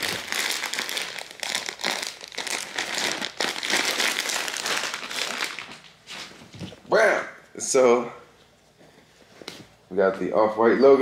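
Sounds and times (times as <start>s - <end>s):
plastic bag crinkling: 0.0s - 6.1s.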